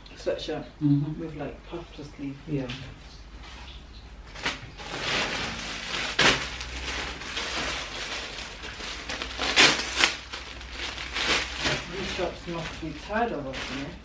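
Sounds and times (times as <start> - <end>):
plastic bags crinkling: 4.2 - 14.0.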